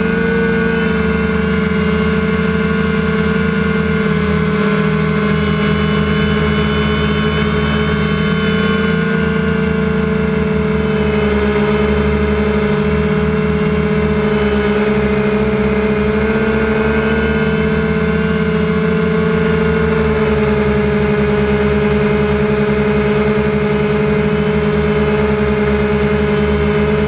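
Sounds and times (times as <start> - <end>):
drone motors whining: 0.0 - 27.0.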